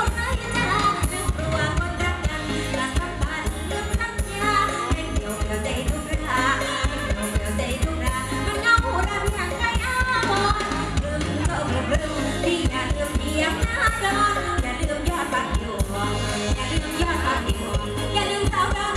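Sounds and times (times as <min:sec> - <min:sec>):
bass: 0:00.0 - 0:18.9
live band music through speakers: 0:00.0 - 0:18.9
woman singing: 0:00.0 - 0:18.9.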